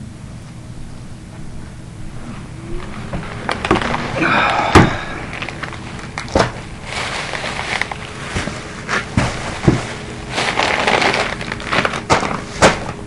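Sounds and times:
plastic bag crinkling: 2.8 - 13.0
sharp knocks: 4.6 - 5.3.

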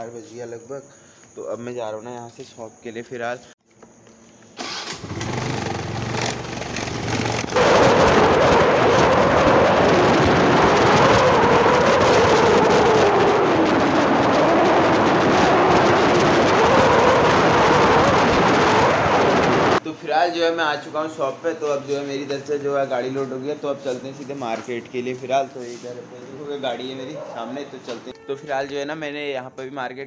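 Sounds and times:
motorcycle engine: 4.6 - 13.4
wind rush on microphone: 7.2 - 19.8.

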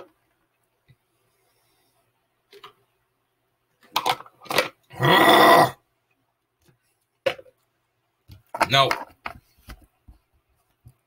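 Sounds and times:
person groaning: 4.9 - 5.8.

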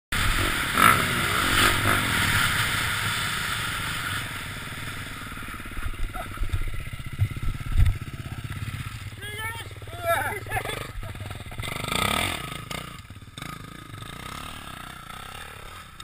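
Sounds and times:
motorcycle engine revving: 0.2 - 16.0.

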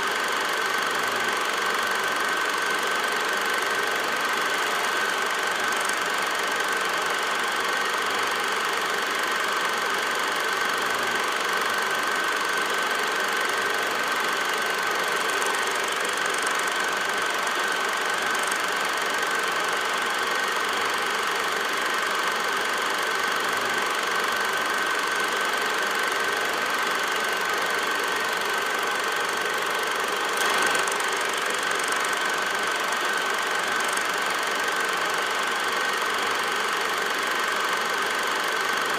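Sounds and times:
film projector whirring: 0.0 - 38.9.

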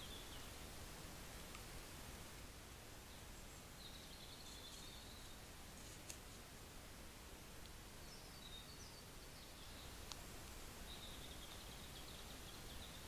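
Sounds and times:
faint night forest ambience: 0.0 - 13.0
faint high wavering chirps: 10.8 - 13.0.

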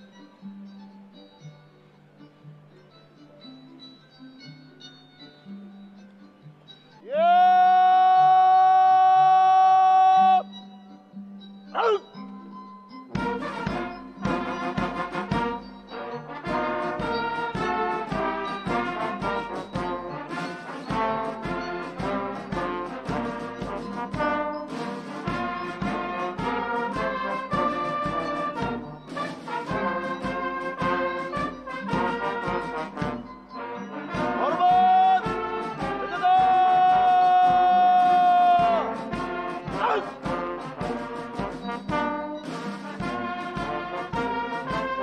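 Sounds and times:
brass band music: 13.1 - 45.0.

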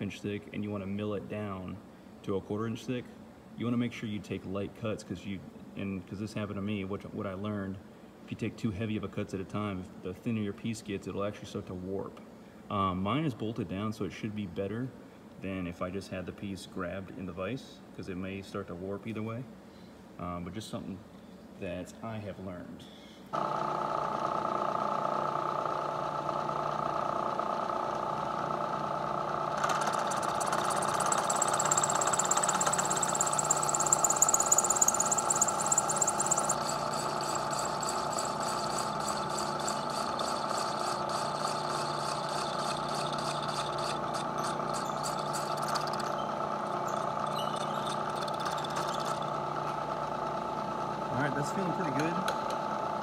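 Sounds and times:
steady machine hum: 23.2 - 53.0
milling machine cutting aluminum: 29.5 - 50.0.

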